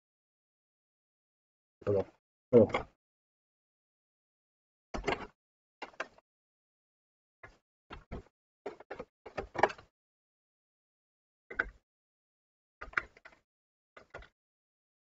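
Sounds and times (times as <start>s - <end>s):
clicks and knocks of computer parts: 5.0s - 6.2s, 7.4s - 9.9s, 12.8s - 13.4s, 14.0s - 14.3s.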